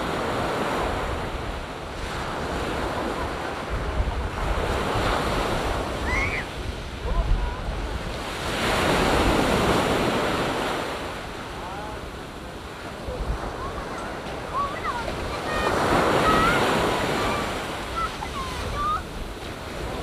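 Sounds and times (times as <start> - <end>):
sea waves breaking on beach: 0.0 - 20.0
wind rumbling on microphone: 0.0 - 20.0.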